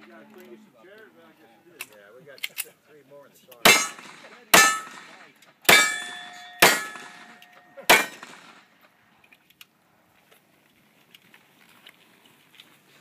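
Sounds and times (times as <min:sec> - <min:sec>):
pistol shots: 0:03.6 - 0:08.8
steel target ringing clang: 0:03.7 - 0:08.6.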